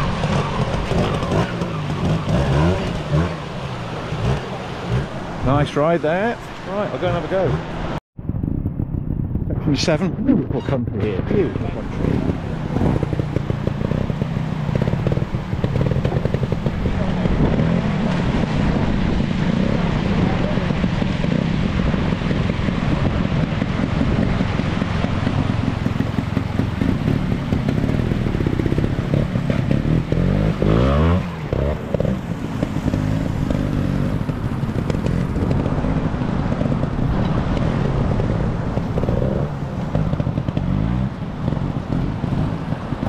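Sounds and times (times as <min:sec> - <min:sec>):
motorcycle engine revving: 0:00.0 - 0:09.4, 0:10.6 - 0:43.0
wind: 0:00.0 - 0:43.0.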